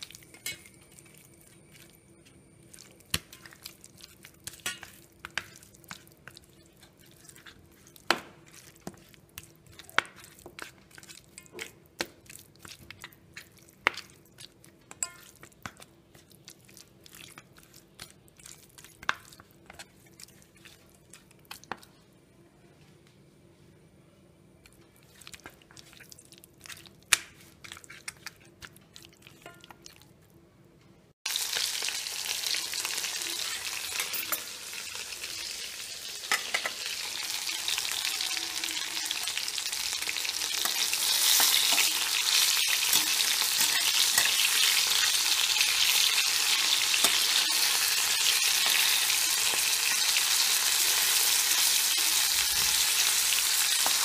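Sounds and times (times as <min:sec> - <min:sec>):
chicken sizzling in hot oil: 0:00.0 - 0:08.5, 0:31.2 - 0:54.0.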